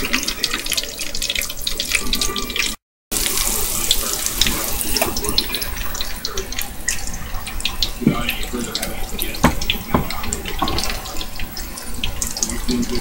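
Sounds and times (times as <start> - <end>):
fish sizzling in hot oil: 3.1 - 13.0.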